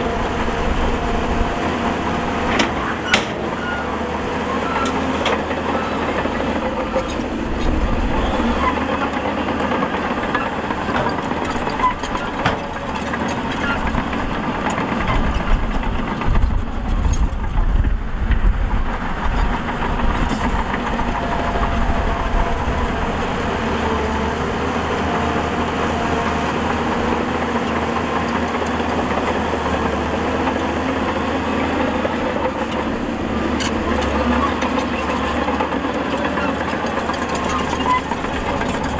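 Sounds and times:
heavy diesel engine running: 0.0 - 38.9.

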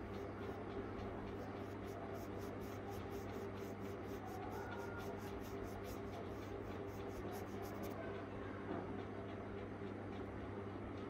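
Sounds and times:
steady low hum: 0.0 - 11.0
paintbrush stroking on fabric: 1.4 - 8.0.

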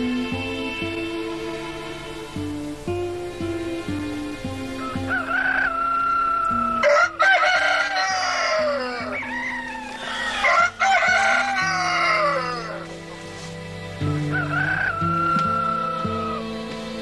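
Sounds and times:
roosters crowing: 4.5 - 16.8.

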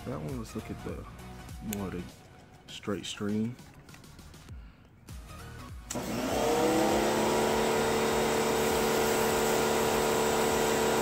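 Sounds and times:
electric pressure washer motor: 5.9 - 11.0.

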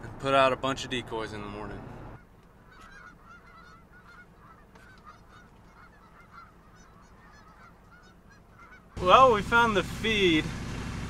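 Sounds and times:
flock of geese honking: 2.1 - 9.6.

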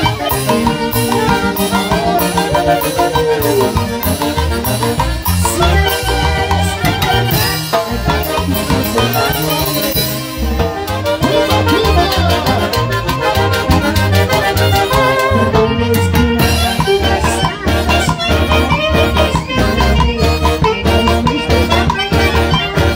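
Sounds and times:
drum kit beat: 0.0 - 22.9
saxophones and trumpets melody: 0.0 - 22.9.

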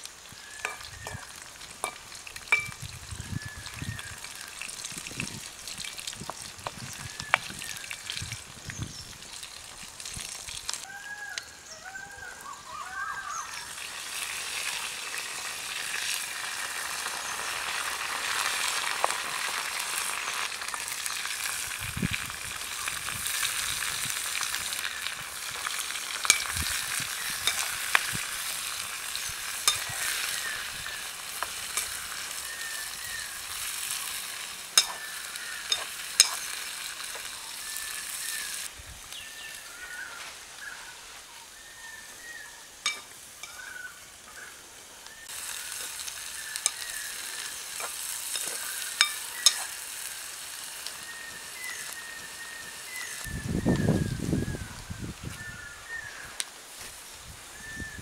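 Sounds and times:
prawns sizzling in oil: 0.0 - 11.7, 12.4 - 58.0
metal spoon clinking on pan: 1.8 - 2.8, 26.2 - 26.6, 27.4 - 27.7, 29.6 - 30.0, 34.8 - 35.0, 35.7 - 36.4, 42.8 - 43.6, 48.3 - 49.7.

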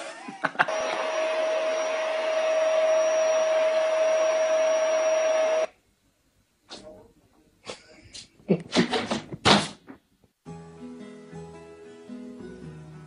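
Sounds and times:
appliance motor whining: 0.7 - 5.7.

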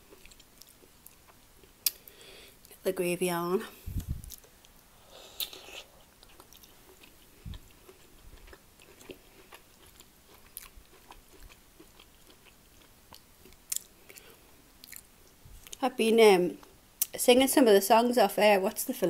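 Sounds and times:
chewing and crunching: 0.0 - 2.1, 5.4 - 15.8.

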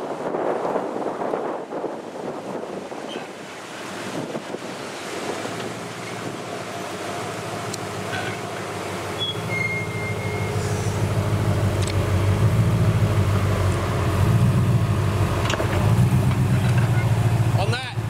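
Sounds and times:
vehicle engine under load: 3.7 - 18.0.

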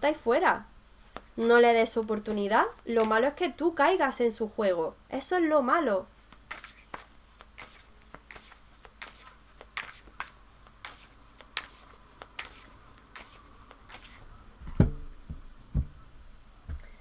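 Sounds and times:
cards being shuffled: 1.0 - 3.4, 6.2 - 14.2.

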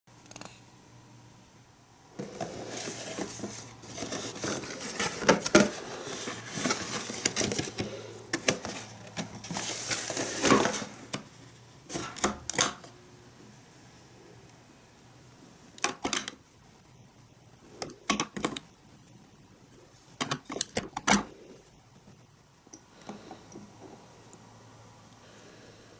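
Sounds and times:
cardboard box opening: 2.2 - 11.2
packaging rustling: 2.2 - 11.3
plastic clicks and knocks: 17.8 - 18.7.

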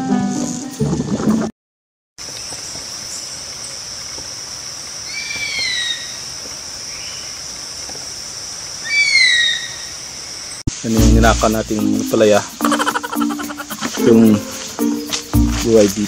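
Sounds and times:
high insect drone: 2.2 - 16.0
bird cry: 5.1 - 6.2, 8.8 - 10.0.

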